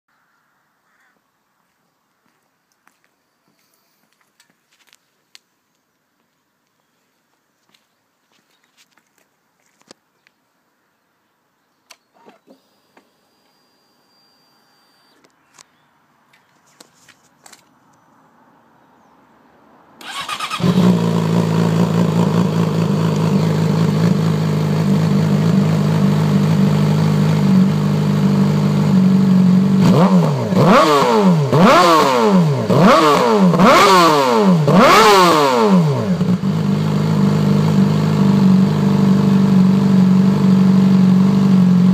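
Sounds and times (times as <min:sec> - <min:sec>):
motorcycle engine idling: 0:20.0 - 0:31.8, 0:35.6 - 0:41.9
motorcycle throttle blips: 0:20.0 - 0:41.9.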